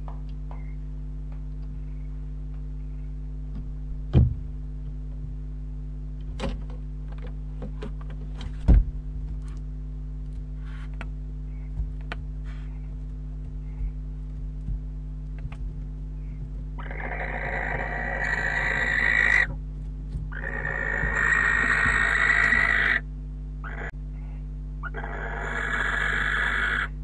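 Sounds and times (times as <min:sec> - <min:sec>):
electrical hum: 0:00.0 - 0:27.0
scratches and knocks on wood: 0:10.3 - 0:16.8.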